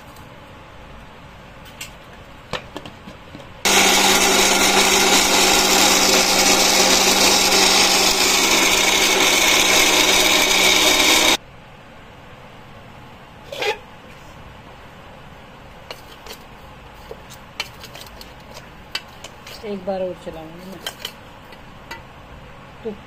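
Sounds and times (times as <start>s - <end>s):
electric mixer grinder grinding spices: 3.7s - 11.4s.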